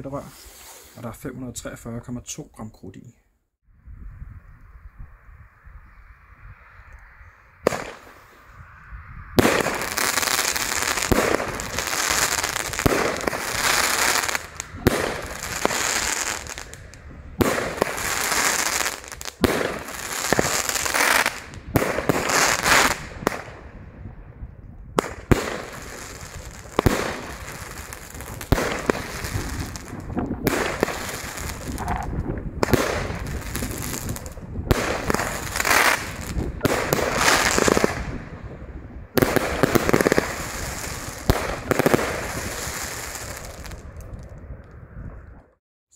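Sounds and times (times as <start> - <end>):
firework shots and bursts: 7.6 - 8.4, 9.4 - 23.9, 25.0 - 38.5, 39.1 - 44.2
firework crackling: 7.6 - 8.6, 9.4 - 23.6, 25.0 - 38.4, 39.2 - 44.4.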